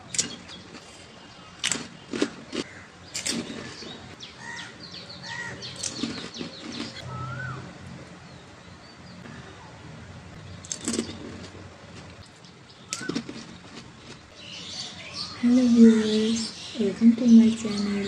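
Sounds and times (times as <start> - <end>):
wet chewing: 0.0 - 4.2, 5.6 - 7.1, 10.6 - 14.4
chirp-like squeaks: 0.1 - 7.6, 10.4 - 11.6, 12.4 - 18.0
crisp shells crunching: 5.8 - 7.0, 10.6 - 14.3.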